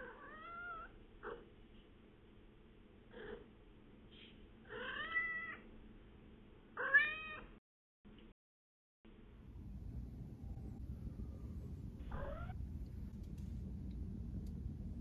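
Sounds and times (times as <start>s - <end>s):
cat chirping trills: 0.0s - 1.5s, 4.7s - 5.7s, 12.0s - 12.6s.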